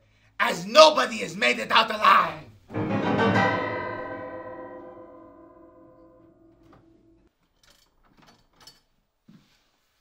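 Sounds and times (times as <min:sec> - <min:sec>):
piano chord ringing: 0:02.7 - 0:07.3.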